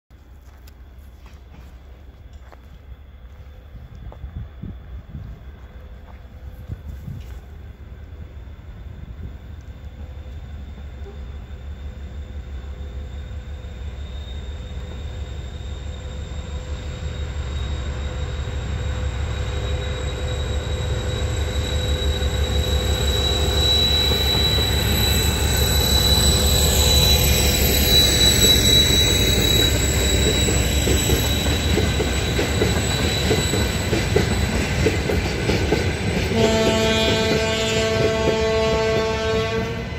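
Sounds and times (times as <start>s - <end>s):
diesel locomotive engine pulsing: 0.2s - 39.9s
horn-like tone: 36.3s - 39.9s.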